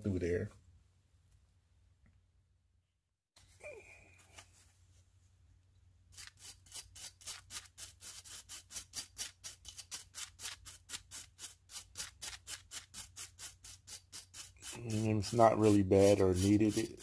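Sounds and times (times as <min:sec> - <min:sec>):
wire brush scrubbing metal: 0:06.1 - 0:17.0.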